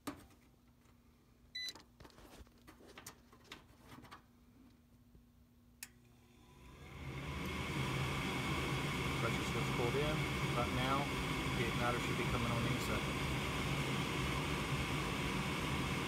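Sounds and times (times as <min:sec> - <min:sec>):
furnace inducer motor whirring: 0:05.8 - 0:16.0.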